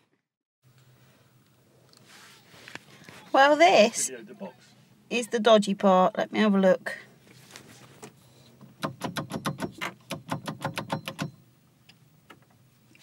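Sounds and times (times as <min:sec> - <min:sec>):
rapid rattling clicks of steering joint: 0:08.6 - 0:11.4.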